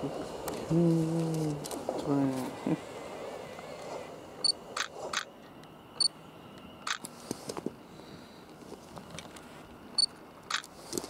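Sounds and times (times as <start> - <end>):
sharp clicks: 4.8 - 5.3, 6.6 - 7.1, 10.4 - 10.7.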